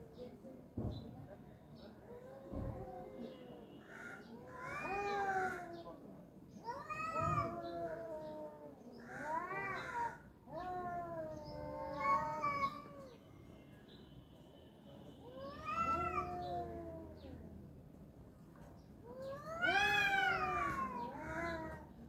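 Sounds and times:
cats yowling: 3.9 - 5.8, 6.6 - 13.2, 15.3 - 17.4, 19.1 - 21.9.

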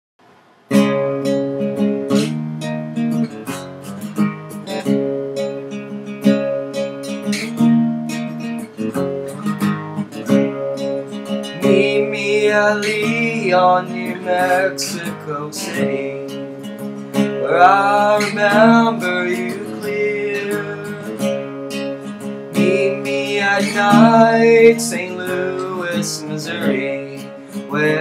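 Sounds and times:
acoustic guitar: 0.2 - 28.0
person singing: 11.4 - 16.5, 17.1 - 21.5, 22.5 - 28.0.

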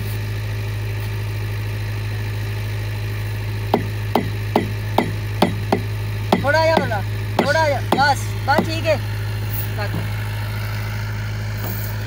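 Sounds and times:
motor humming: 0.0 - 12.0.

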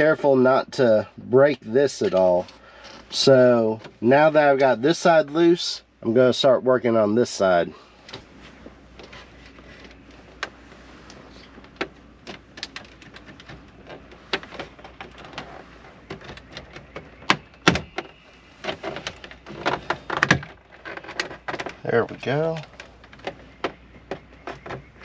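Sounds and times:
plastic trim clicks and creaks: 11.4 - 25.0.

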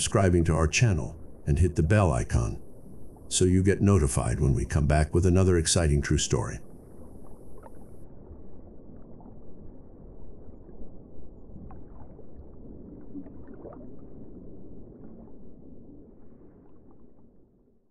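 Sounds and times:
low underwater rumble: 0.0 - 17.8
faint water gurgling: 0.0 - 17.9.

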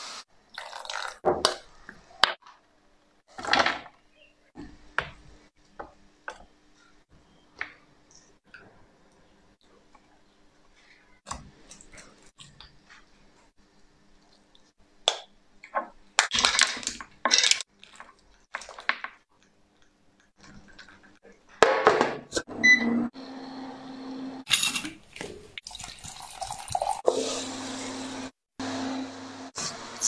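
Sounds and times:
food handling clicks and rustles: 16.2 - 21.6.

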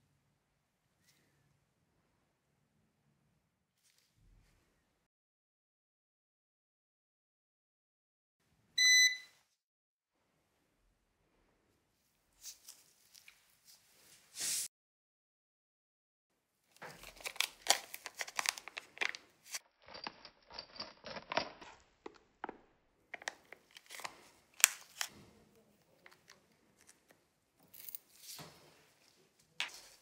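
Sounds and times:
plastic bag crinkling: 16.8 - 25.3.

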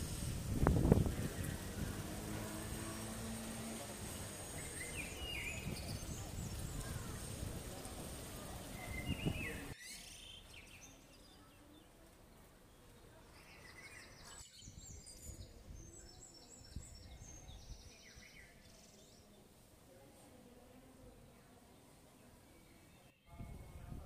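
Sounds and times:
quiet street ambience: 0.0 - 24.0
birds chirping and trilling: 8.6 - 11.9.

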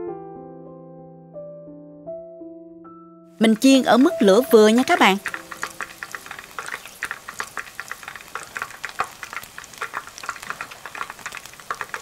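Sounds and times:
fish deep-frying in oil: 3.4 - 12.0.

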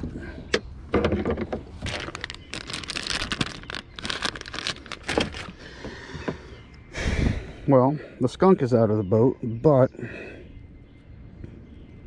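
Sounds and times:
plastic bag crinkling: 1.8 - 5.6.

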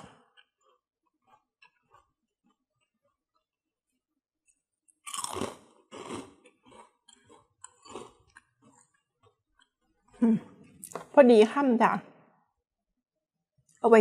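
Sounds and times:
crunchy toast being chewed: 0.2 - 10.2.

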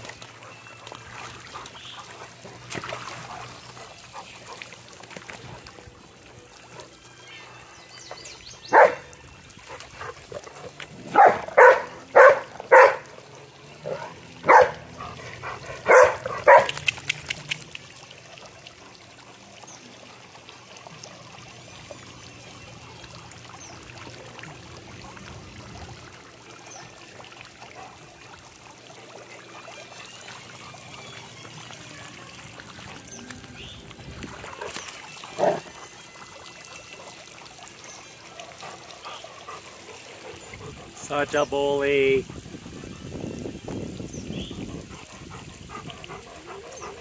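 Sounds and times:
sprinkler jets hissing: 1.3 - 47.0
dog barking: 8.7 - 9.0, 11.1 - 13.1, 13.9 - 14.8, 15.8 - 16.8.

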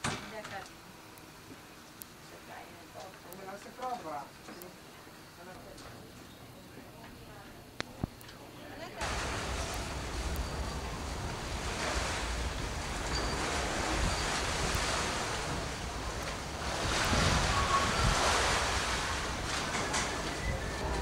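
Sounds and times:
wind blowing over microphone: 9.0 - 21.0.

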